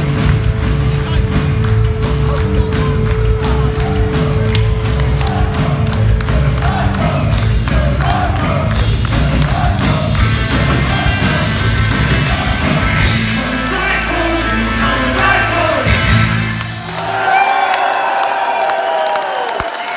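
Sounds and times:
live rock band playing: 0.0 - 17.0
voices singing: 2.4 - 16.3.

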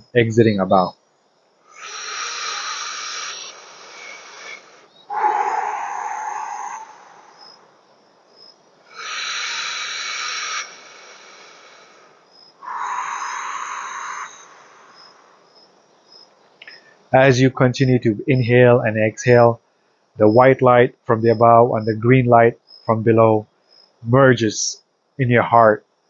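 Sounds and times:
man breathing deeply: 1.7 - 7.4, 8.9 - 15.4.

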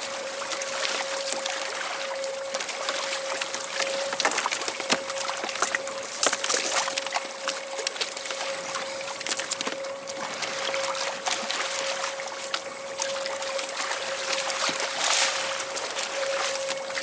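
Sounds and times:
steady whine: 0.0 - 17.0
water splashing against kayak hull: 0.0 - 17.0.

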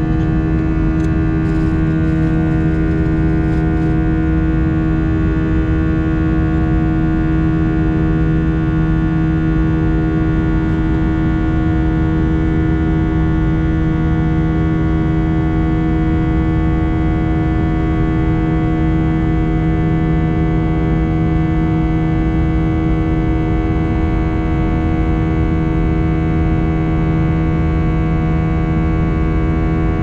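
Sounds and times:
steady humming tones: 0.0 - 17.1
jet engine drone in cabin: 0.0 - 30.0.

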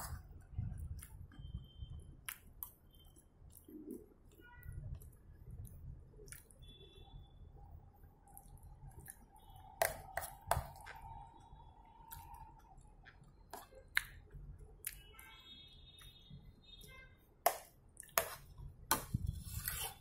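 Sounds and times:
soft chewing: 0.0 - 6.8, 8.0 - 15.3, 16.0 - 20.0
cutlery scraping on plate: 19.0 - 20.0.

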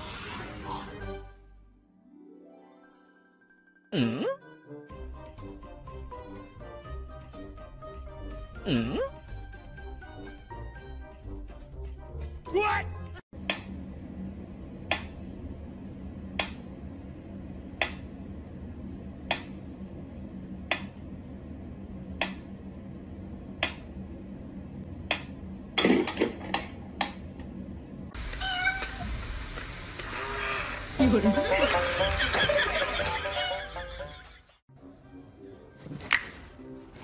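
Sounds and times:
cat meowing: 28.2 - 29.2.

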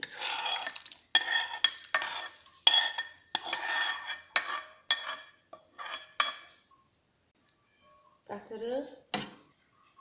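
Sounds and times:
metal spoon scraping cooking pot: 0.0 - 6.7.

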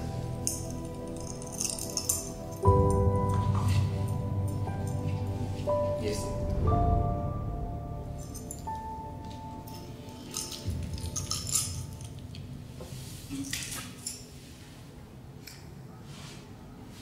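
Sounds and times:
metal key on chain jingling: 0.4 - 5.2, 8.2 - 8.9, 9.6 - 12.2, 13.4 - 14.3.

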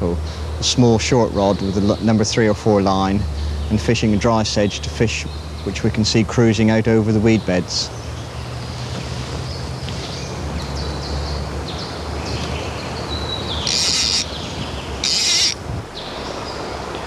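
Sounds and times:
small birds chirping: 0.0 - 17.0
steady low hum: 0.0 - 17.0
short buzzing bursts: 13.6 - 15.8.

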